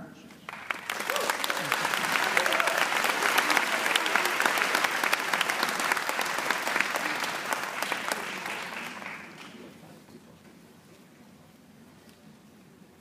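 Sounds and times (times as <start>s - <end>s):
audience applauding: 0.5s - 9.8s.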